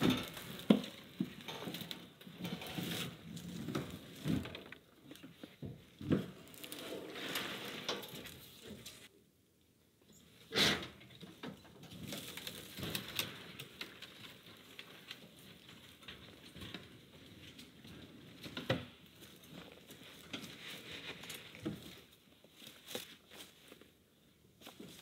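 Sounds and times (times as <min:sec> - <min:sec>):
plastic tank and cage rattling: 0:00.0 - 0:04.8.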